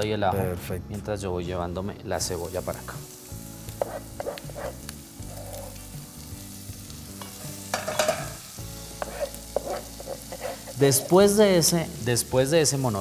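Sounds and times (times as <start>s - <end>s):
onion sizzling in a frying pan: 2.1s - 13.0s
utensil knocking and scraping pan: 3.8s - 4.8s, 7.2s - 8.4s, 9.0s - 10.8s.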